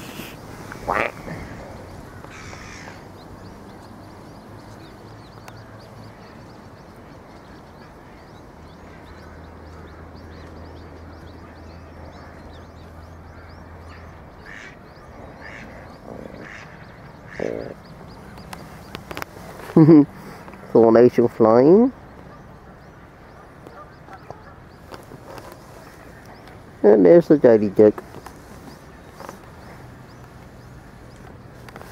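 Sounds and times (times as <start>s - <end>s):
harsh duck calls: 0.0s - 3.0s, 14.4s - 17.9s
ducklings peeping: 0.0s - 31.9s.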